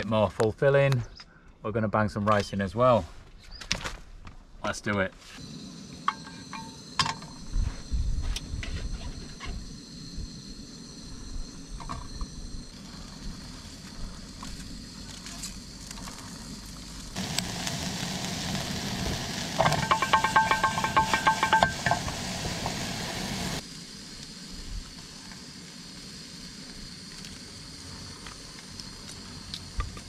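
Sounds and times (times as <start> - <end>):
gas burner hissing: 5.4 - 30.0
pan and utensils clicking: 19.5 - 23.0.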